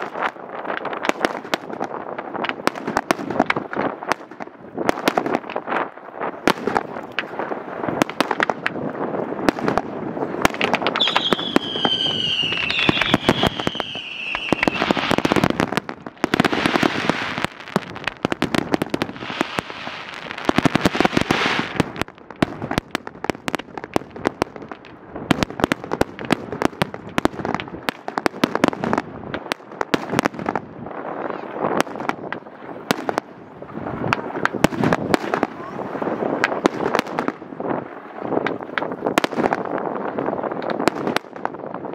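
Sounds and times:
fireworks bangs and crackling: 0:00.0 - 0:41.9
falling firework whistle: 0:10.9 - 0:15.5.

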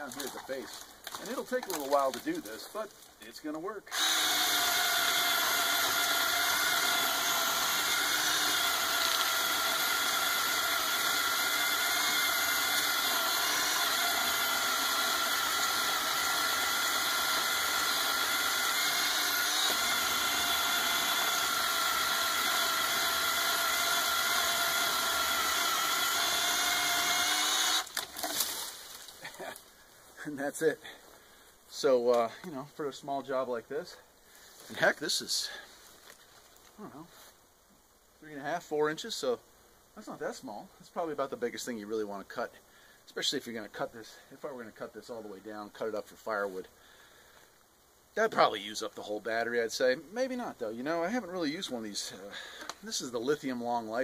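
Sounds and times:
electric chainsaw cutting wood: 0:03.9 - 0:29.0.

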